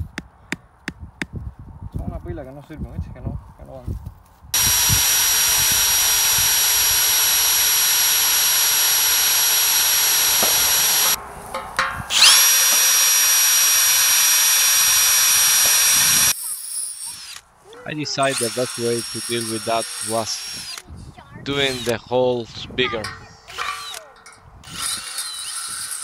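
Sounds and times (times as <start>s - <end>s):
cordless drill drilling metal: 4.6s - 11.2s, 12.1s - 17.4s, 18.2s - 20.8s, 21.5s - 22.0s, 23.0s - 26.0s.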